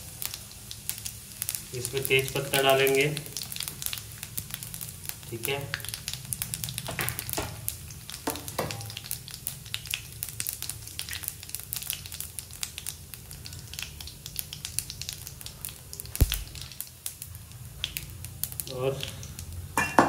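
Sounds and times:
seeds sizzling in hot oil: 0.0 - 19.9
sharp knock: 16.2 - 16.5.

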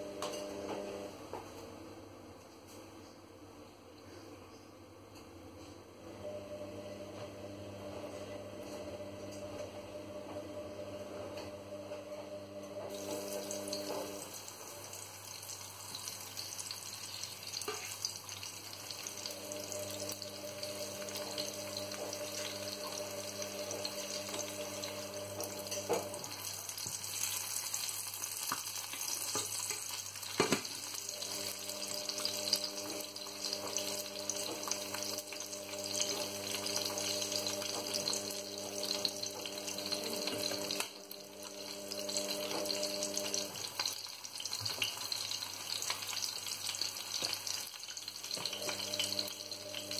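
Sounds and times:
fish sizzling in oil: 12.9 - 49.9.

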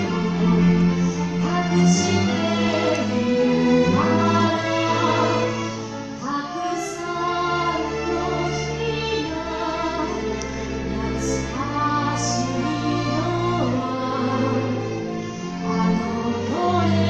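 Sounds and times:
string orchestra playing: 0.0 - 17.0
woman singing: 1.3 - 10.4, 11.0 - 15.0, 15.6 - 17.0.

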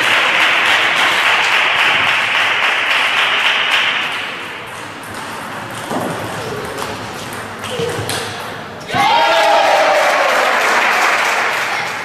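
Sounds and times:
spectators clapping: 0.0 - 4.6, 9.2 - 12.0.

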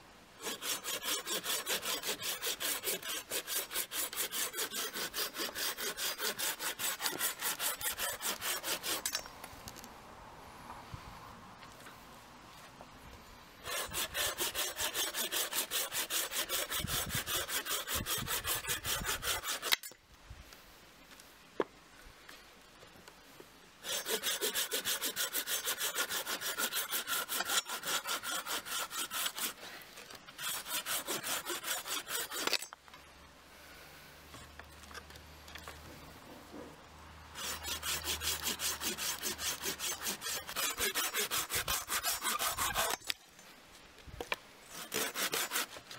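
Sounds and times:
pruning saw cutting branch: 0.4 - 9.3, 13.6 - 20.0, 23.8 - 29.6, 30.3 - 32.8, 37.3 - 43.2, 44.7 - 45.9.

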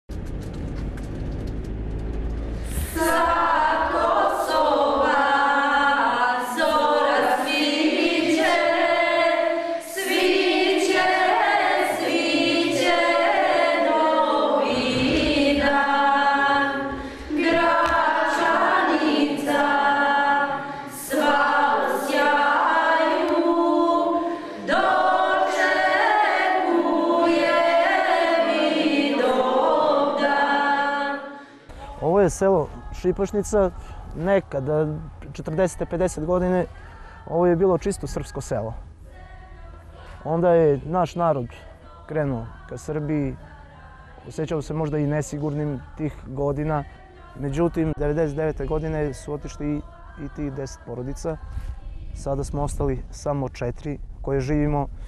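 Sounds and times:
low rumble: 0.0 - 4.8
children and women singing: 2.6 - 52.3.

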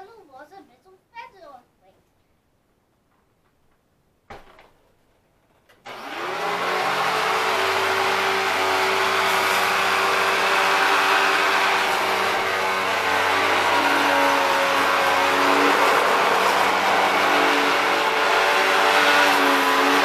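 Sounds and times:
knock: 4.3 - 4.8
vacuum cleaner running: 5.8 - 20.0.

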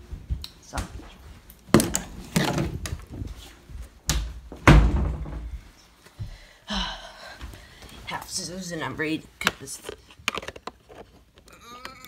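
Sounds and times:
door knocks and thuds: 4.1 - 5.6
loud door bangs: 4.6 - 5.5.

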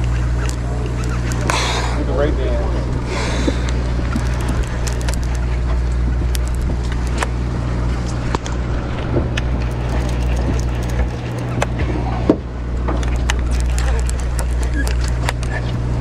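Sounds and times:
boat engine running: 0.0 - 16.0
sharp clicks and knocks: 3.4 - 7.4.

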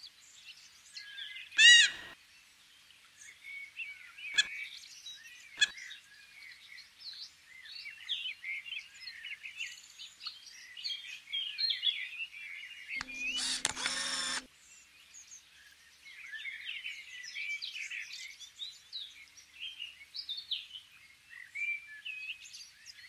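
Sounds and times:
small birds chirping: 0.4 - 2.2, 3.2 - 11.8, 13.0 - 15.0.

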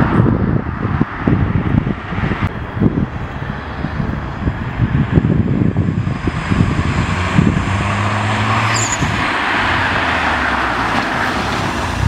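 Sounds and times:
rushing noise of passing car: 0.0 - 12.0
car engine passing by: 4.8 - 12.0.

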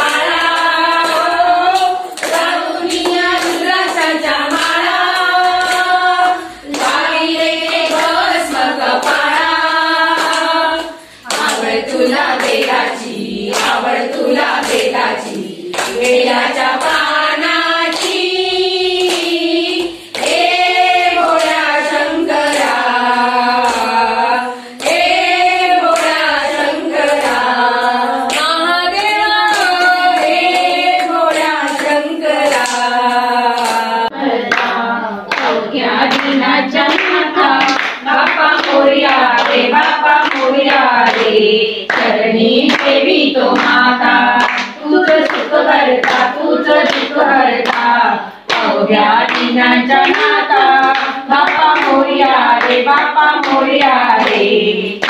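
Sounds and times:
rhythmic hand clapping: 0.0 - 55.0
women singing together: 0.0 - 55.0.

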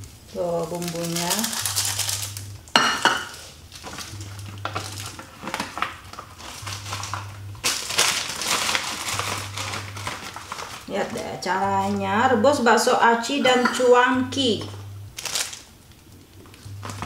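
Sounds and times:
low pulsing hum: 0.0 - 17.0
plastic packet crinkling: 0.3 - 2.6, 3.2 - 12.1, 15.2 - 15.8, 16.4 - 17.0.

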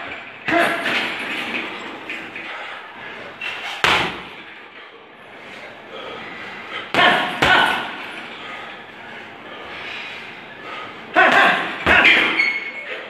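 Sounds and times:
punching bag being struck: 3.8 - 4.4, 6.9 - 8.0.

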